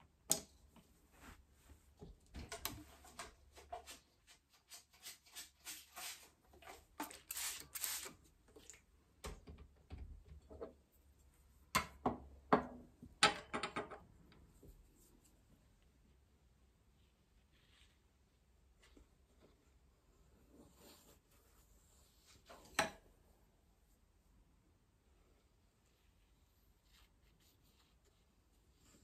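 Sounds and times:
paintbrush strokes on paper: 0:03.0 - 0:08.1, 0:16.8 - 0:22.5, 0:25.3 - 0:29.0.

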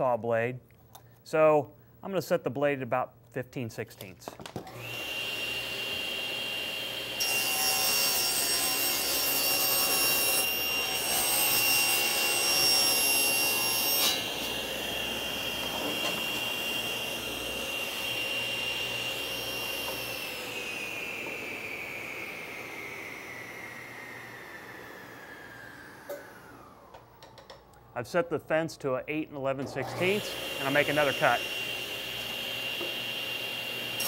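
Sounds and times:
table saw whining: 0:04.6 - 0:27.8, 0:29.1 - 0:34.0
saw ripping plywood: 0:11.0 - 0:20.6.

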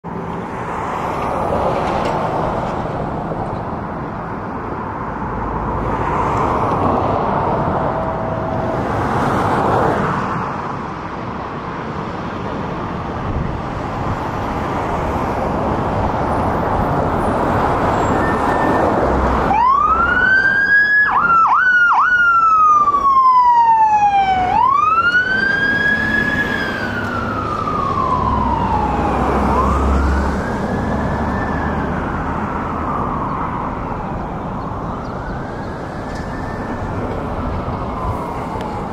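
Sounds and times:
siren wailing: 0:06.6 - 0:10.1, 0:18.0 - 0:38.9.

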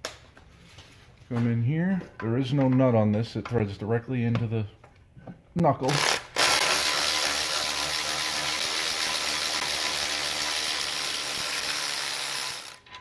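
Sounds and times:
cordless electric ratchet running: 0:05.9 - 0:12.9.

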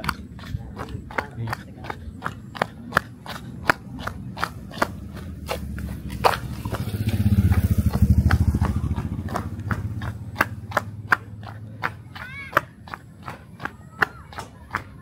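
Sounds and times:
running footsteps: 0:00.0 - 0:15.0.

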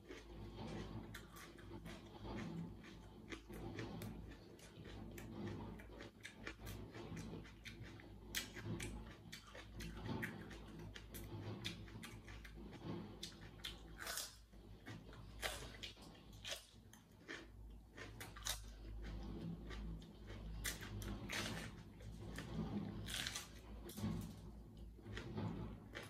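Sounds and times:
pepper crunching while chewed: 0:14.0 - 0:21.7, 0:23.1 - 0:23.6.

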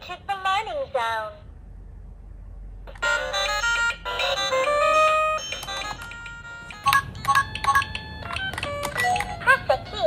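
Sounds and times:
toy keys clicking and beeping: 0:03.0 - 0:10.0
electronic jingle of beeping tones: 0:05.0 - 0:09.3.

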